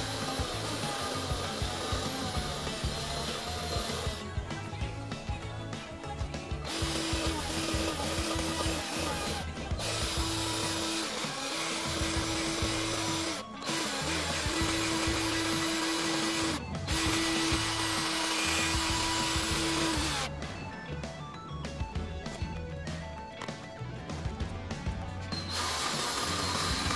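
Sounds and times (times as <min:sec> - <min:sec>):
cordless drill whining: 0:00.0 - 0:04.4, 0:06.5 - 0:20.3, 0:25.4 - 0:26.9.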